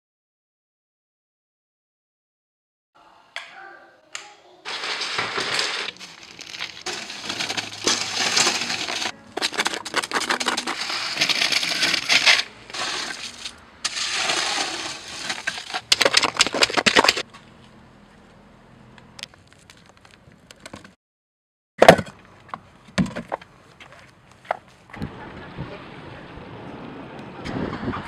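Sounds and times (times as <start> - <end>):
shovel scraping wet concrete: 4.7 - 17.3.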